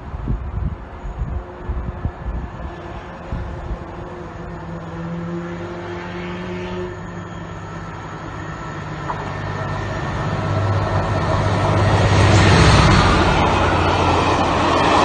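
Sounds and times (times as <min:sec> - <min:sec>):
diesel locomotive engine hum: 0:00.0 - 0:15.0.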